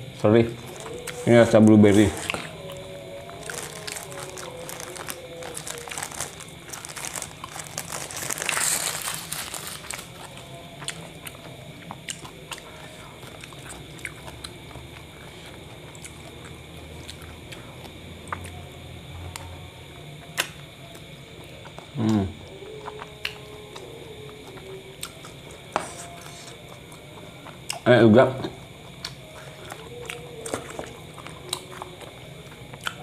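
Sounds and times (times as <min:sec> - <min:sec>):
paper wrapper crinkling: 0:03.3 - 0:10.3.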